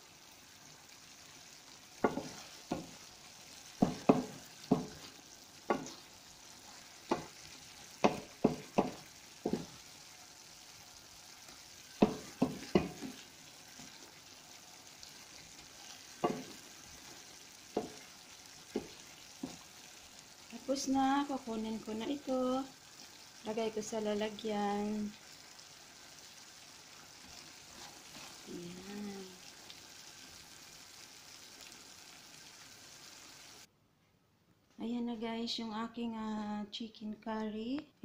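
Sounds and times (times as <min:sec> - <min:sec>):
sauce bubbling: 0:00.0 - 0:33.7
spatula knocking against pan: 0:02.0 - 0:03.0, 0:03.8 - 0:05.0, 0:05.6 - 0:06.0, 0:07.0 - 0:07.4, 0:08.0 - 0:09.8, 0:12.0 - 0:13.2, 0:16.2 - 0:16.6, 0:17.7 - 0:18.1, 0:18.7 - 0:19.7.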